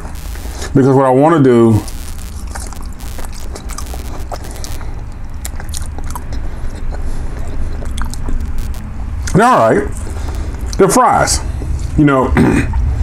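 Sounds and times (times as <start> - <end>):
low steady hum: 0.0 - 13.0
person chewing crunchy fry: 1.8 - 10.8.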